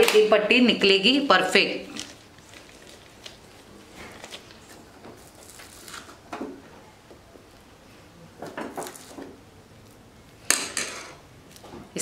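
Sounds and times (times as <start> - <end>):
plastic sheet rustling: 1.9 - 6.2.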